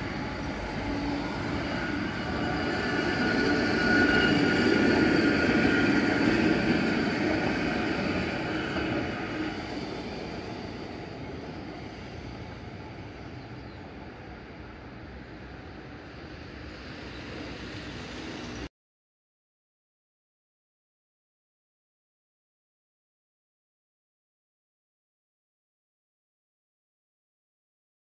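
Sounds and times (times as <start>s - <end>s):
high whine of tram: 0.0s - 18.7s
tram running on street track: 0.0s - 18.7s.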